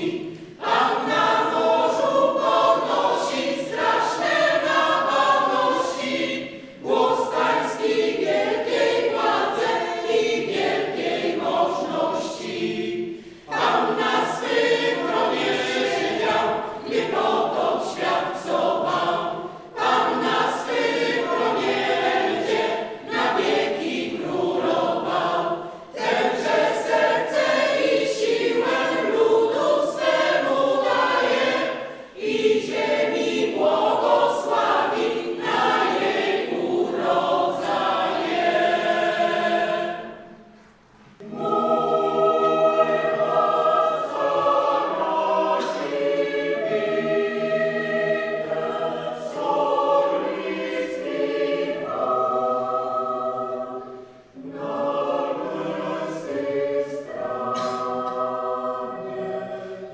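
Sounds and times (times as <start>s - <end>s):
mixed choir singing: 0.0s - 59.9s.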